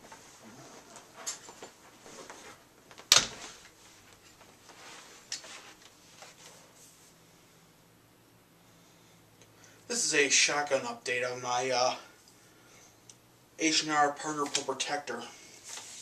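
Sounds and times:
rustling: 0.0 - 7.2.

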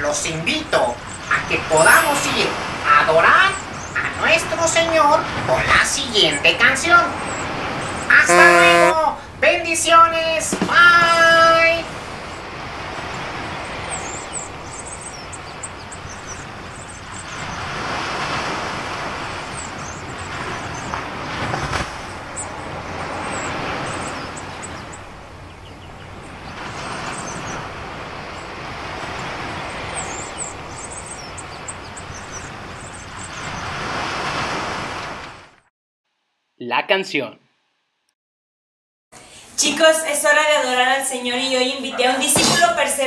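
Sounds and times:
ocean waves washing in: 0.1 - 35.6
faint high chirps: 1.7 - 2.5.

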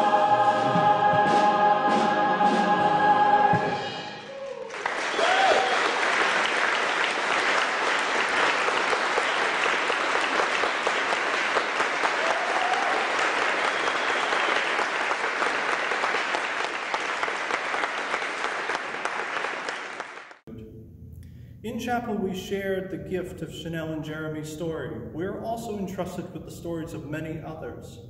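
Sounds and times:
audience applauding: 4.2 - 20.4.

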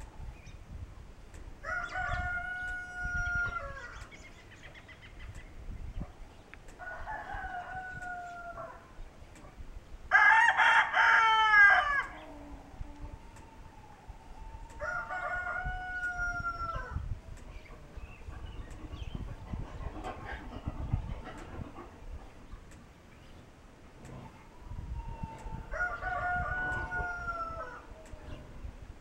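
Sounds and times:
rooster crowing: 1.6 - 4.0, 6.8 - 8.9, 10.1 - 17.0, 24.5 - 28.4.

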